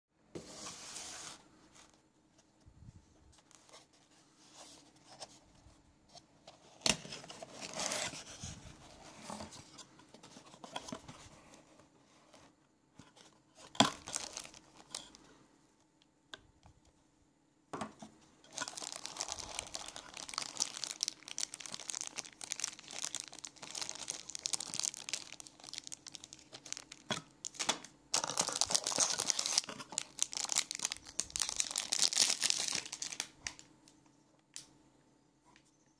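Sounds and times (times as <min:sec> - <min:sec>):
cardboard box being opened: 0:07.2 - 0:09.8
plastic bag crinkling: 0:13.7 - 0:15.2, 0:18.4 - 0:33.7.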